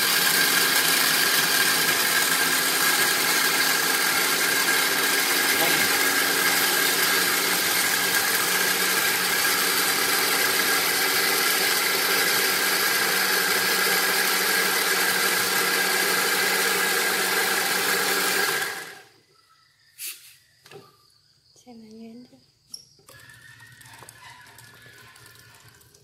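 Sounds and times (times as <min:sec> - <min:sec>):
blender motor running: 0:00.0 - 0:19.1.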